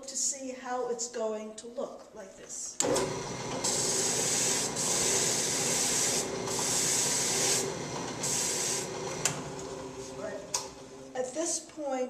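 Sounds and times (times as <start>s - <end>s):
drill press motor humming: 2.8s - 11.2s
wooden bowl sanding: 3.7s - 9.0s.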